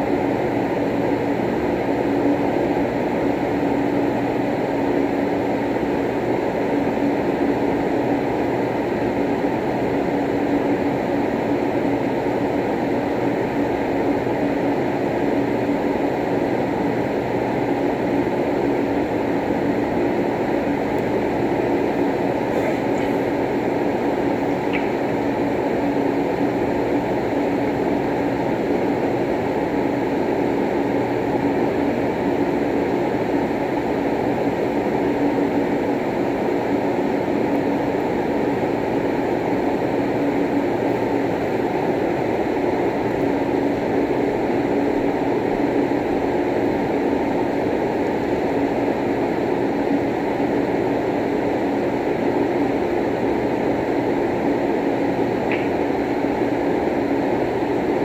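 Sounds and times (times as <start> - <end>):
faint hum: 0.0 - 58.0
room noise rumble: 19.7 - 28.3.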